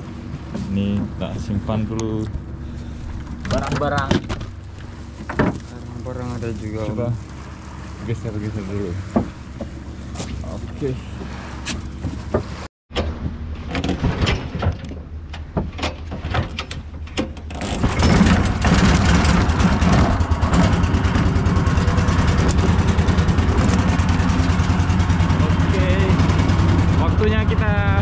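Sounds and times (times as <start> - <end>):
handling knocks and clatter: 3.1 - 7.0, 9.0 - 27.0
small boat engine running: 17.8 - 28.0.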